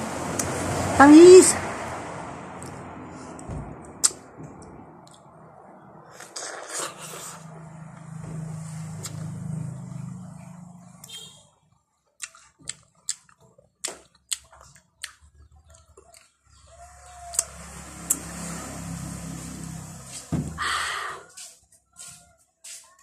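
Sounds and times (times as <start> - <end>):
wet lip-smacking and chewing: 6.1 - 7.4, 12.2 - 16.4.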